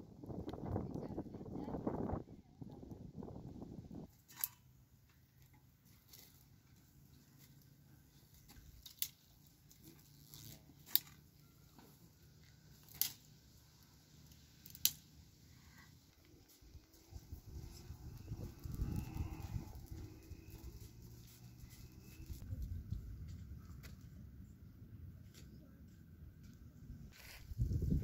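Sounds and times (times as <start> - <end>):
wood fire crackling: 12.7 - 22.5.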